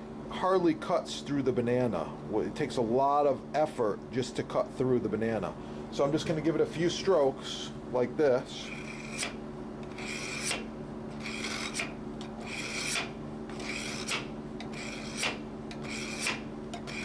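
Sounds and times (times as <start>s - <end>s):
knife rasping through sharpener: 8.6s - 17.0s.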